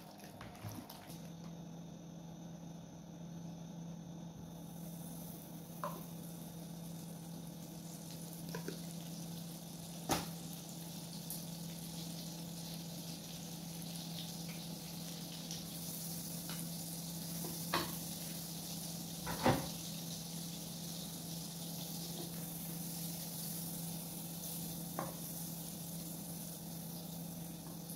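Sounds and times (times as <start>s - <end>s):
steady low hum: 0.0s - 19.2s
butter sizzling in a wok: 4.4s - 27.9s.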